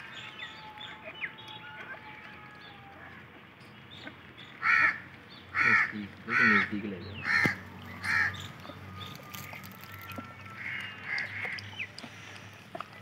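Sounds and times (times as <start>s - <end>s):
harsh caw-like bird calls: 4.6s - 12.6s
small birds chirping and whistling: 7.0s - 12.6s.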